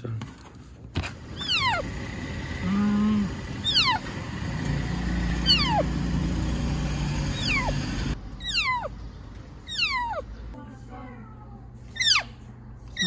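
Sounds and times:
low traffic rumble: 0:00.9 - 0:12.9
short low hum: 0:01.2 - 0:08.2
kitten crying: 0:01.4 - 0:01.8, 0:02.6 - 0:04.0, 0:05.4 - 0:05.9, 0:07.4 - 0:07.8, 0:08.4 - 0:08.9, 0:09.7 - 0:10.3, 0:12.0 - 0:12.4.

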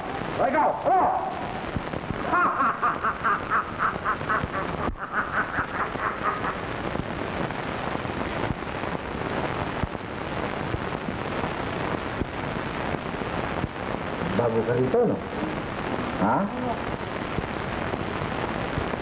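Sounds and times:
even hiss: 0:00.0 - 0:19.0
man laughing loudly: 0:02.2 - 0:06.8.

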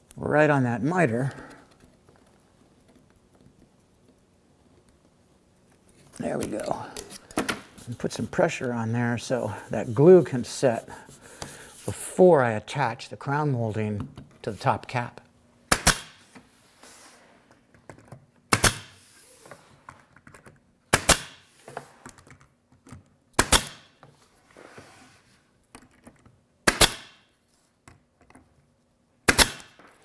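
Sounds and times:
pin nailer popping: 0:15.7 - 0:16.2, 0:18.5 - 0:19.0, 0:20.9 - 0:21.4, 0:23.3 - 0:23.9, 0:26.6 - 0:27.3, 0:29.2 - 0:30.0.

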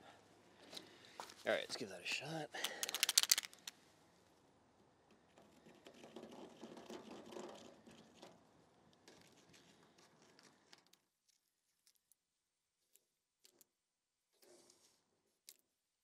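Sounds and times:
faint scratching and handling: 0:05.2 - 0:12.2, 0:14.4 - 0:15.4.

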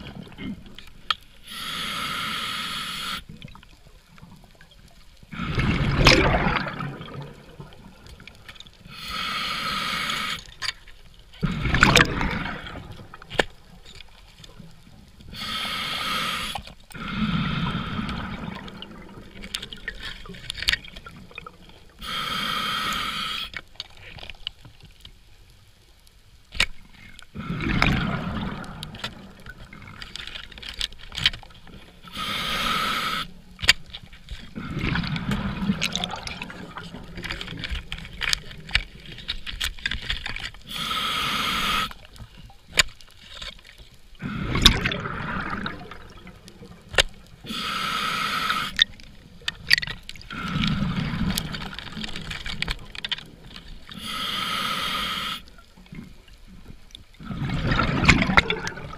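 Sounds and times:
exhaled bubbles gurgling: 0:00.0 - 0:00.9, 0:03.3 - 0:10.4, 0:11.4 - 0:13.8, 0:14.5 - 0:23.3, 0:27.3 - 0:30.6, 0:34.5 - 0:39.2, 0:44.2 - 0:58.9
regulator inhale hiss: 0:01.4 - 0:03.3, 0:08.8 - 0:10.5, 0:15.3 - 0:18.4, 0:22.0 - 0:23.6, 0:32.0 - 0:33.5, 0:40.6 - 0:42.1, 0:47.4 - 0:48.9, 0:53.9 - 0:55.6.

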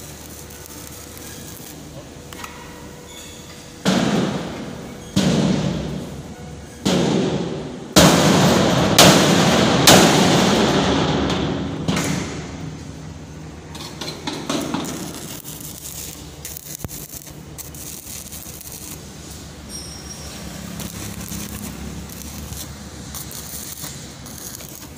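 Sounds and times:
welding arc crackling: 0:00.0 - 0:02.4, 0:13.5 - 0:24.9
hammer striking steel tank: 0:05.2 - 0:06.0, 0:06.9 - 0:12.6.

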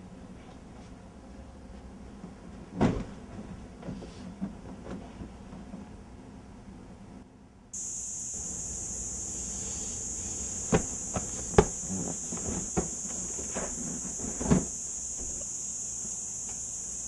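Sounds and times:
cicada buzzing: 0:07.8 - 0:17.0
knocks and thumps: 0:10.6 - 0:15.5.

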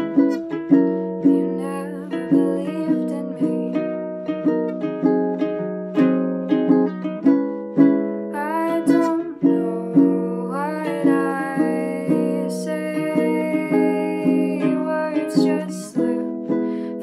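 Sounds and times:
ukulele strumming chords: 0:00.0 - 0:17.0
woman singing: 0:01.1 - 0:04.2, 0:08.3 - 0:17.0.

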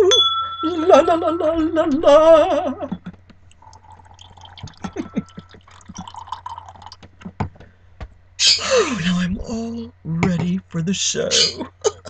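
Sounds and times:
liquid gurgling: 0:03.4 - 0:07.1
wine pouring into a glass: 0:03.5 - 0:07.1.

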